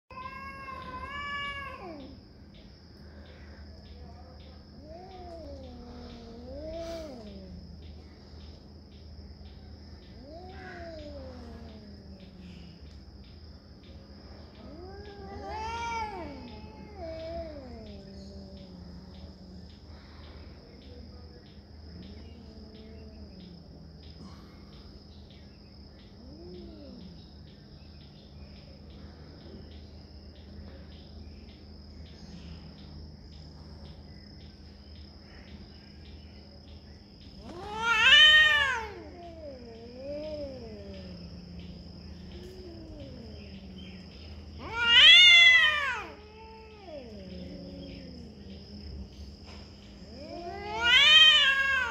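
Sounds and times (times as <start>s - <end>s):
cats growling and yowling: 0.1s - 2.2s, 4.7s - 8.6s, 9.5s - 20.6s, 21.8s - 25.0s, 25.9s - 27.6s, 37.3s - 51.9s.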